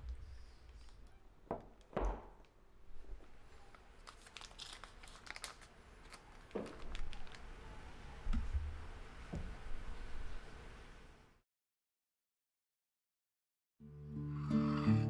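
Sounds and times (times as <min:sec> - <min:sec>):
paper liner crinkling and tearing: 0:03.6 - 0:07.5.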